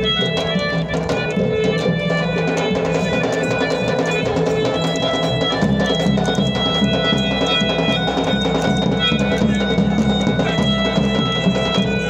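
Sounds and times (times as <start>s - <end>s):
harmonium melody: 0.0s - 12.0s
steady drum beat: 0.0s - 12.0s.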